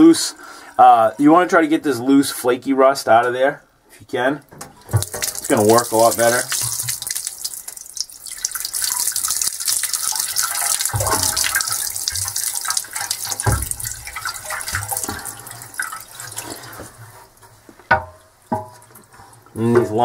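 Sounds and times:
tap water splashing into sink: 0:04.5 - 0:17.0
dull thumps: 0:10.8 - 0:12.4, 0:13.2 - 0:15.4.

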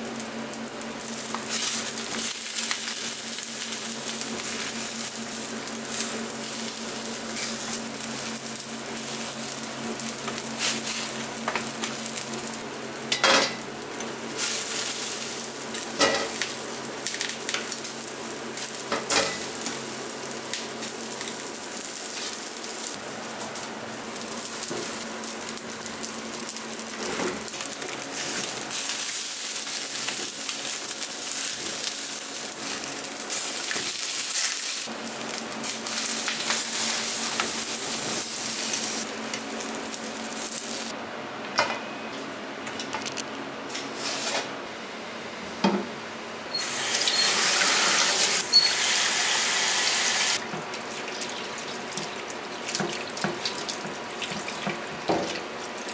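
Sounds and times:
pot boiling and bubbling: 0:00.0 - 0:41.0, 0:46.5 - 0:55.9.

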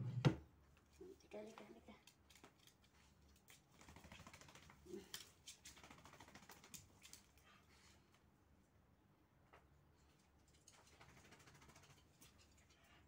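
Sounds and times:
dog claws clicking on tile: 0:02.0 - 0:07.4.

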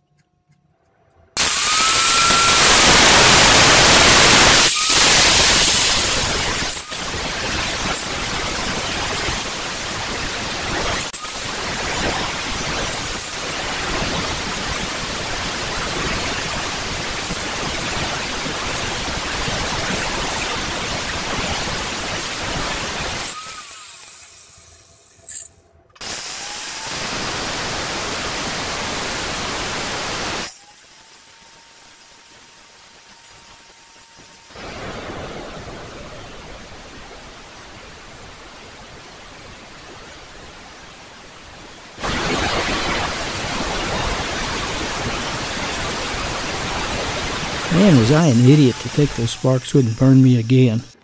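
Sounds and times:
angle grinder cutting steel: 0:01.4 - 0:09.5, 0:14.8 - 0:27.8, 0:46.4 - 0:51.0.

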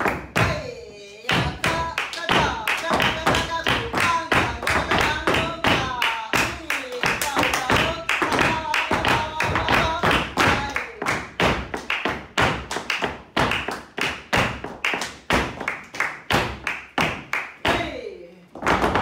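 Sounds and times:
hand claps: 0:00.0 - 0:00.6, 0:01.4 - 0:17.9
shoes tapping and stamping on floor: 0:18.6 - 0:19.0.

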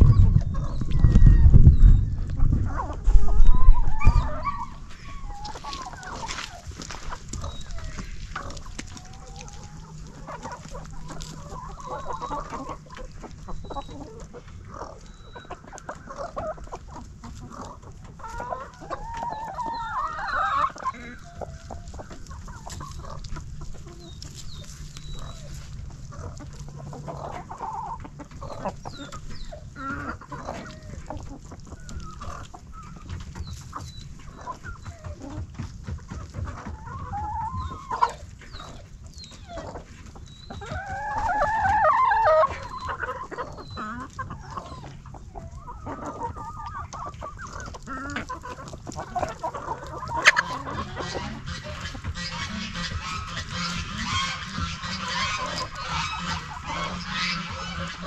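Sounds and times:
hens clucking: 0:00.0 - 0:58.0.

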